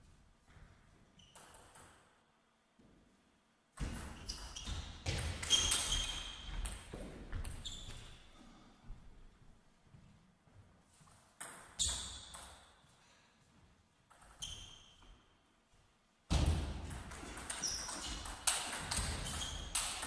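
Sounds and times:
shoes squeaking on floor: 0.5 - 1.6, 4.1 - 8.3, 14.1 - 15.5, 17.2 - 20.0.

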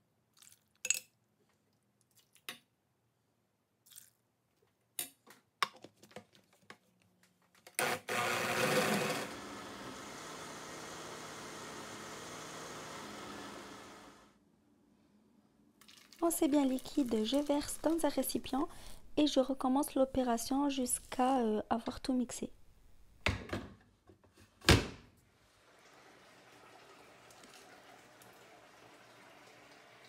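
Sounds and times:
blender motor running: 7.8 - 14.3.

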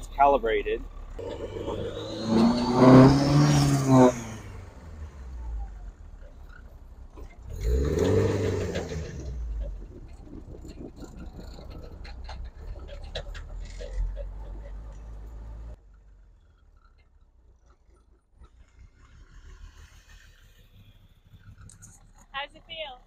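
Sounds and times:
high turbo whine: 0.0 - 15.8
turbo engine accelerating hard: 0.0 - 15.8, 18.0 - 23.0.

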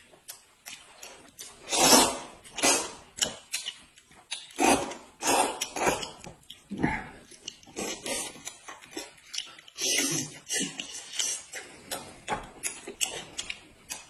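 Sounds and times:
noodles slurped: 1.0 - 3.7, 4.3 - 6.3, 7.4 - 12.1.

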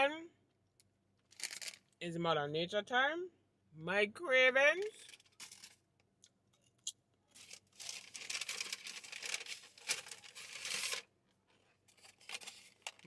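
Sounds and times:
plastic packaging rustling: 1.3 - 1.9, 7.3 - 13.0.

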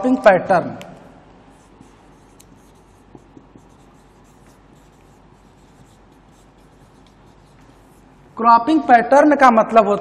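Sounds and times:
marker pen scratching on whiteboard: 1.5 - 8.4.

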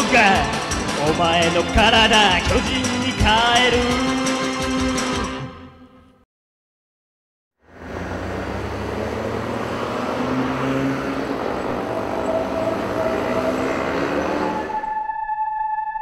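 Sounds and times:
city traffic noise: 7.6 - 15.0.

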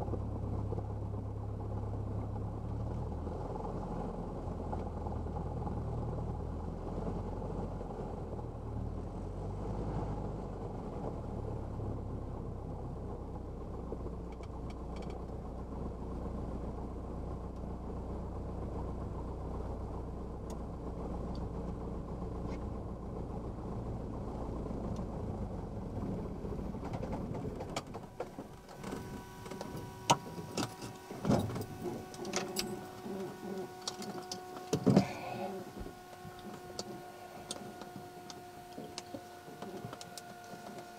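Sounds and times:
aircraft engine idling: 11.5 - 40.9
faint steady tones: 19.6 - 40.9.

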